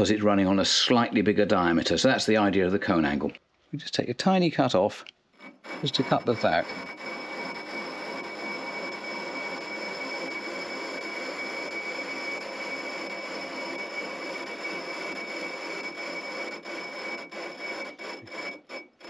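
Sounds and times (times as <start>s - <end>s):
high whine: 5.4s - 17.0s
metal lathe running: 5.4s - 19.0s.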